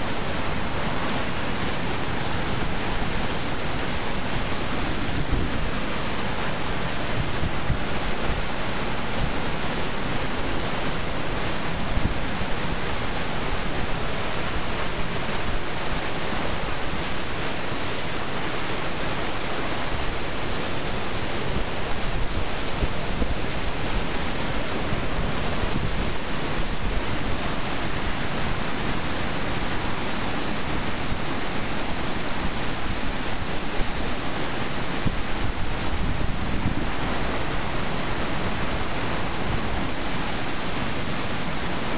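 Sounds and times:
floodwater rushing: 0.0s - 41.9s.

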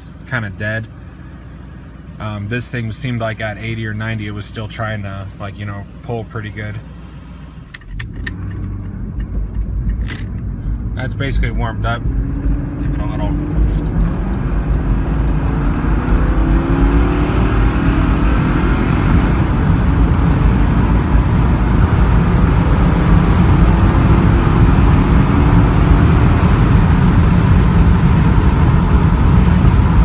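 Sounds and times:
car engine accelerating: 6.9s - 30.0s.

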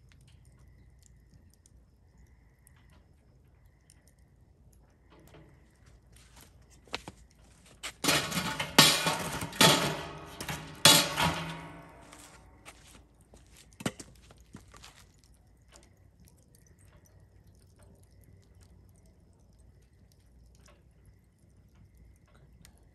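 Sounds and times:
wood fire crackling: 0.0s - 22.9s
loud crackling and knocking: 7.8s - 12.3s.

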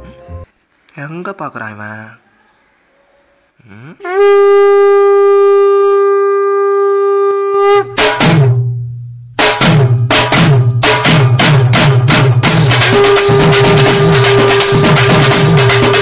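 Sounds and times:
long horn blast: 4.0s - 8.0s, 12.9s - 14.8s
heavy drum hits: 8.0s - 8.7s, 9.4s - 16.0s.

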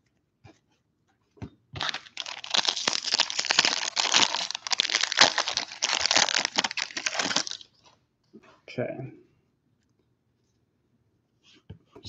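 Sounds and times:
foil wrapper crinkling: 1.8s - 7.7s.

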